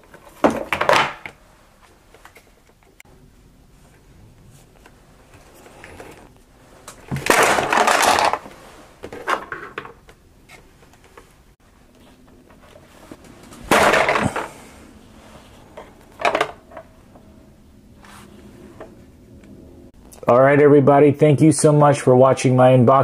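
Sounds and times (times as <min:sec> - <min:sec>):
plastic toys scraping and knocking: 0:06.9 - 0:11.2, 0:12.7 - 0:14.7.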